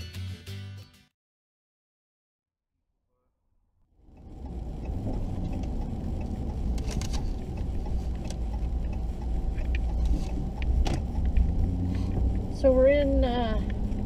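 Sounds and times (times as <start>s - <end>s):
vehicle engine and road rumble: 4.0s - 14.0s.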